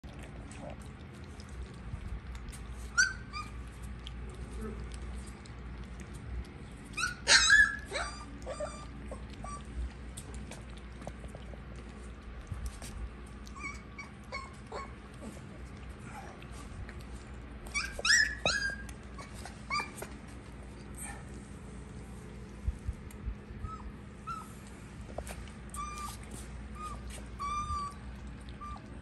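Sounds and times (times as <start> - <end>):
puppies eating from a bowl: 0.0 - 29.0
puppies whining: 2.8 - 4.9, 6.7 - 10.8, 13.2 - 21.4, 23.2 - 29.0.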